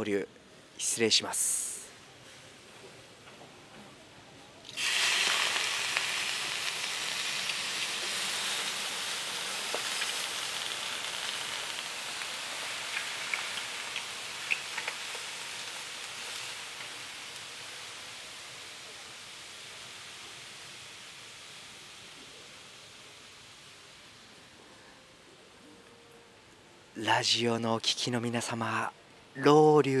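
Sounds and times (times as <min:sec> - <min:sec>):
water hissing on hot stones: 0:04.6 - 0:24.5.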